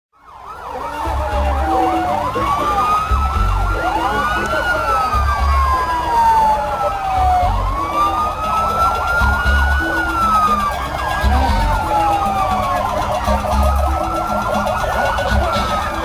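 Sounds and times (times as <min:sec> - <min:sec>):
vehicle sirens wailing: 0:00.2 - 0:16.0
low bass thumping: 0:03.0 - 0:04.0, 0:05.2 - 0:05.8, 0:09.0 - 0:15.9.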